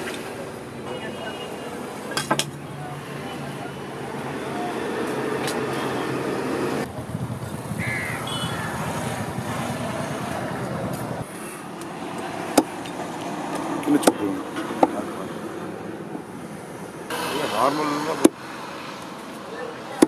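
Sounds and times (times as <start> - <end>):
traffic noise: 0.0 - 20.0
short bird call: 7.8 - 8.9.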